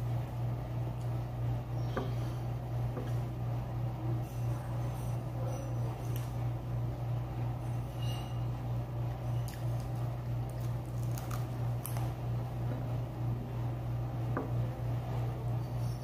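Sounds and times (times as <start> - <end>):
steady low hum: 0.0 - 16.0
wet squishing of eating: 9.4 - 12.2
person chewing: 9.5 - 12.1.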